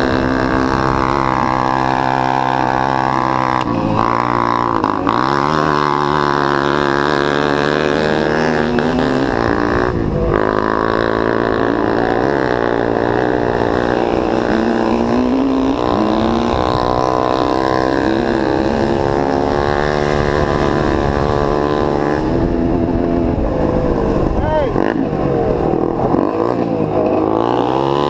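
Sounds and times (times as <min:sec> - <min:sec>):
atv engine running: 0:00.0 - 0:28.0.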